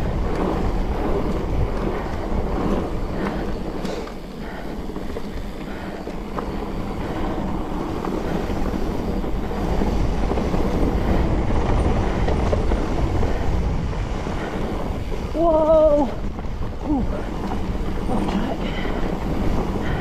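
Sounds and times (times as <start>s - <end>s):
bike tyres rumbling over dirt: 0.0s - 20.0s
wind buffeting microphone: 0.0s - 20.0s.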